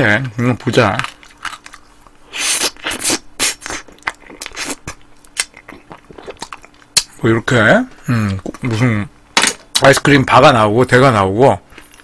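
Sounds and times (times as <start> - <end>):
eating smacks and scrapes: 1.0 - 7.1.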